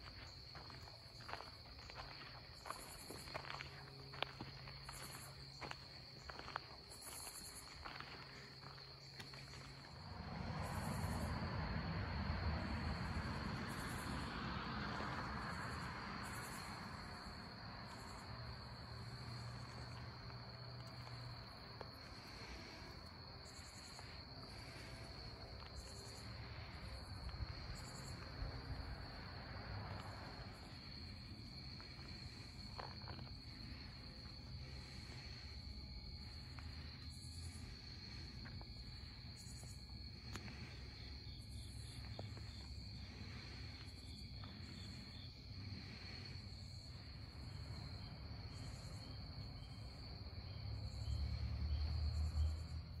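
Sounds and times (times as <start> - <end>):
insects trilling: 0.0 - 53.0
pulsing insect calls: 12.6 - 14.6, 15.2 - 52.8.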